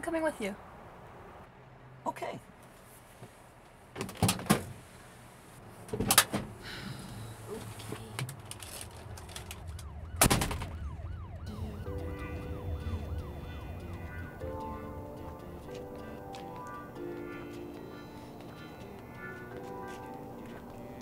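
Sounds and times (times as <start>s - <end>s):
siren-like wail: 8.7s - 21.0s
truck doors slamming shut: 10.2s - 10.8s
music: 11.5s - 21.0s.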